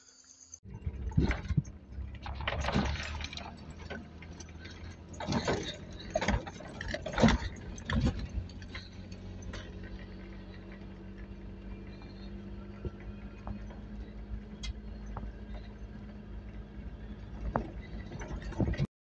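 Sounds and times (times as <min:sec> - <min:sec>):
truck engine low hum: 0:00.6 - 0:18.9
truck body rattling knocks: 0:00.8 - 0:10.6.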